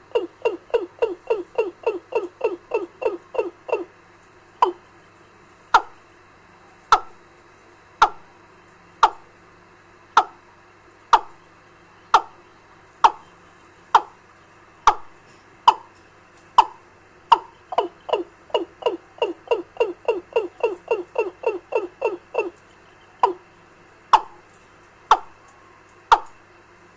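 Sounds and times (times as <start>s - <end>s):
recorded bird lure call: 0.0s - 3.9s, 4.6s - 4.9s, 5.7s - 6.0s, 6.8s - 7.2s, 8.0s - 8.4s, 9.0s - 9.3s, 10.2s - 10.5s, 11.1s - 11.4s, 12.0s - 12.4s, 13.0s - 14.2s, 14.8s - 16.0s, 16.6s - 23.5s, 24.1s - 24.4s, 25.1s - 26.4s.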